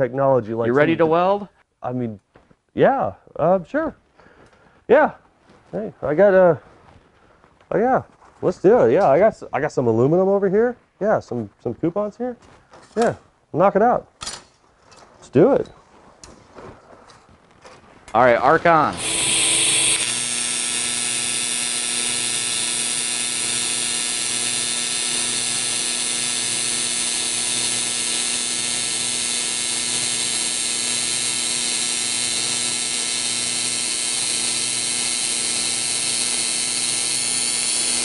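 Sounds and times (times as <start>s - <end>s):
welding arc buzzing hum: 18.2s - 38.0s.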